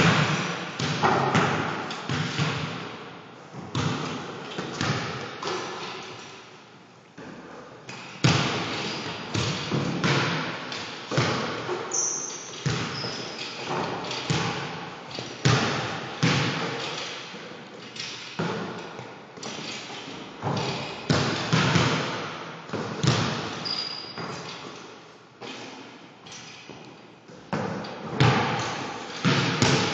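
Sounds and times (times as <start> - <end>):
ball striking rim and backboard: 0.0 - 2.9, 3.6 - 5.9, 7.9 - 17.1, 20.4 - 24.6, 27.5 - 29.9
basketballs bouncing on wooden floor: 0.0 - 6.0, 7.2 - 24.8, 26.8 - 29.9.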